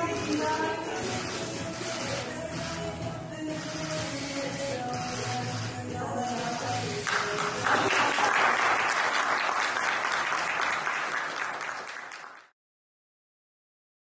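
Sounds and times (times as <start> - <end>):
applause: 7.0 - 12.6.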